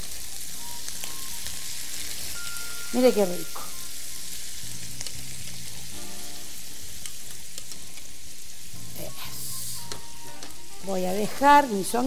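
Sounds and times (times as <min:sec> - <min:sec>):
food sizzling in a frying pan: 0:00.0 - 0:12.0.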